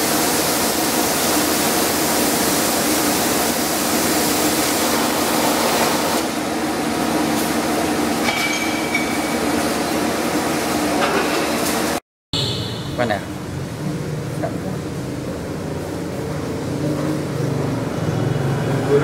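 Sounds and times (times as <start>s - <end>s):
welding arc hissing: 0.0s - 6.4s.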